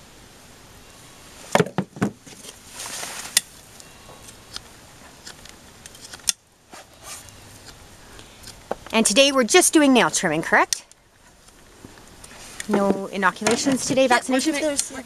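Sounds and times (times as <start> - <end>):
scraping rustle: 2.2 - 7.8, 11.2 - 15.0.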